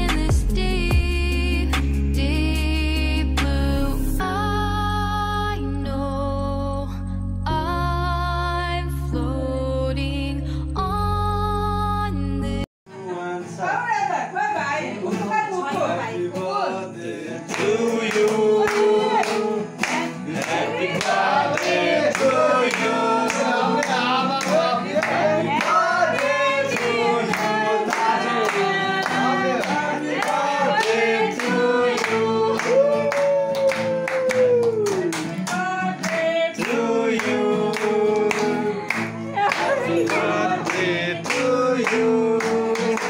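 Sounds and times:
group of people singing: 16.0 - 33.3, 35.2 - 43.0
hand clapping in time: 17.5 - 43.0.

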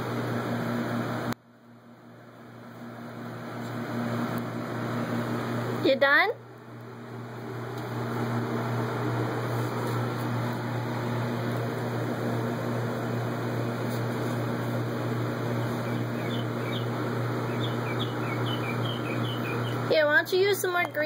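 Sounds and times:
low mechanical hum: 0.0 - 21.0
bird chirping: 15.8 - 19.8.

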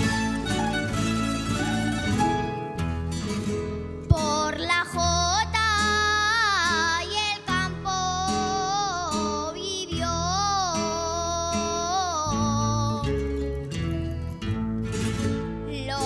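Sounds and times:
plucked string ensemble: 0.0 - 4.8
girl singing: 4.1 - 13.4, 15.7 - 16.0.

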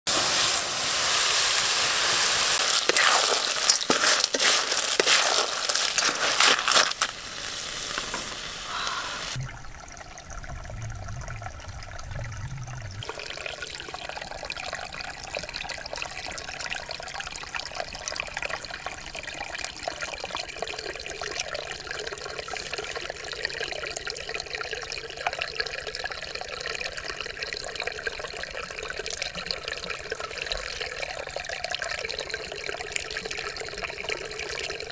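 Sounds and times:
open flames: 0.1 - 9.4
stir-fry sizzling in a wok: 0.1 - 9.4
stream trickling: 0.1 - 34.9
hand sweeping through water: 2.4 - 7.1
low hum: 8.7 - 13.0.

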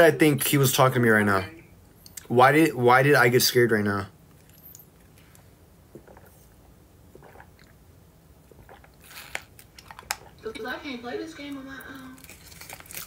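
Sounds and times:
noisy slurp: 6.0 - 7.8, 8.5 - 10.4
sipping through a straw: 7.2 - 7.7, 8.6 - 10.3.

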